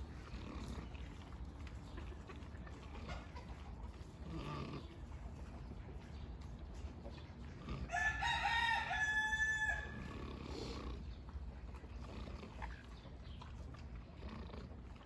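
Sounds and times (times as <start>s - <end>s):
rooster crowing: 7.9s - 10.1s.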